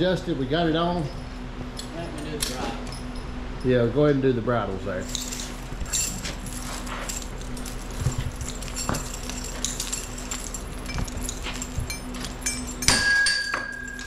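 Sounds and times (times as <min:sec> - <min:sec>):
bridle hardware jingling: 0:05.0 - 0:14.0.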